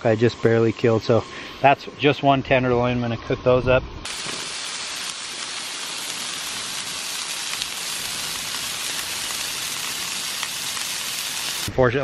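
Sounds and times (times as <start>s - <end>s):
potatoes sizzling in oil: 4.0s - 11.7s
oil popping: 4.1s - 11.7s.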